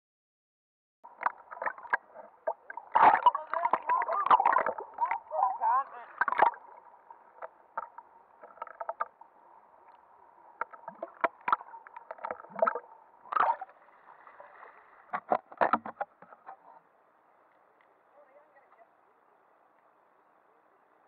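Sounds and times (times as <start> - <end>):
sharp clicks and knocks: 15.1 - 16.6.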